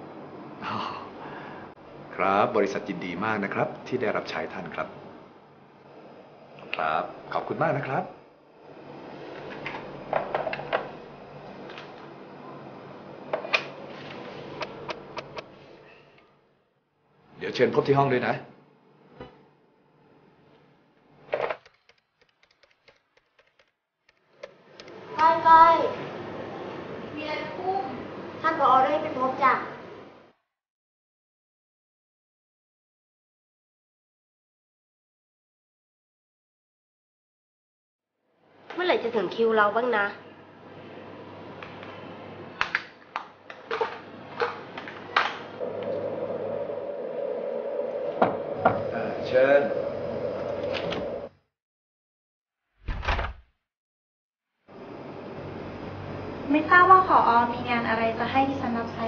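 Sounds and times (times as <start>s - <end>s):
keyboard typing: 21.6s - 23.7s
steady hum: 45.5s - 51.4s.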